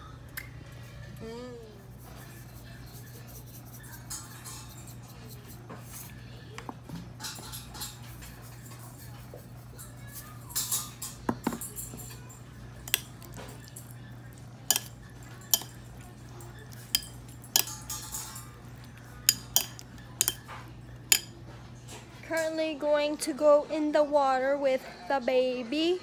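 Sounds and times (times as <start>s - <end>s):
spoon clinking on ceramic bowl: 10.6s - 14.0s, 14.7s - 21.4s.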